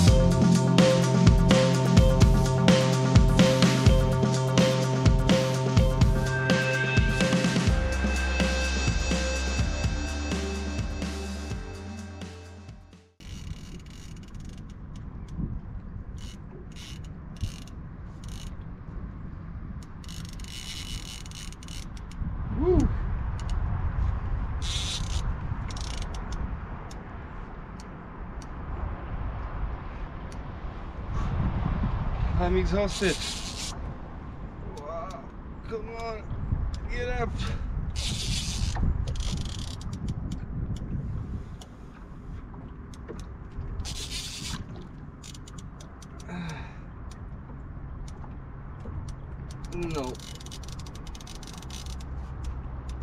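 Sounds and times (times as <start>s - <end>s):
wind rumbling on microphone: 13.2s - 53.0s
fishing reel drag buzzing: 32.9s - 33.8s, 38.0s - 39.8s, 43.8s - 44.6s.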